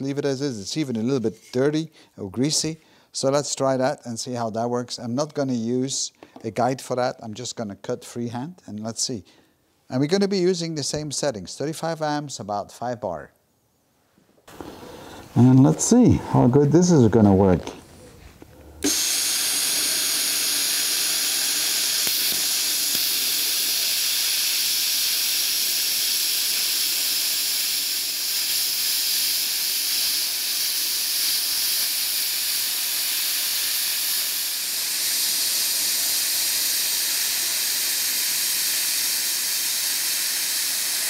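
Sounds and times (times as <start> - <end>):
plasma cutter torch hissing: 18.8 - 41.0.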